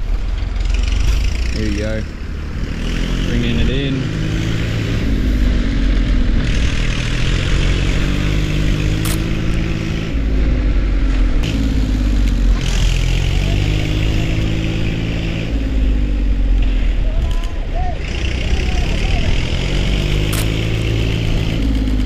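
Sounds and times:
truck engine revving: 0.0 - 22.0
sharp click: 9.0 - 9.3, 20.2 - 20.6.

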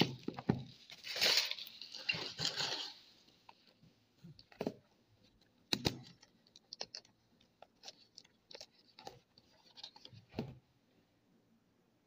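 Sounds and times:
plastic wrap crinkling: 0.0 - 3.1.

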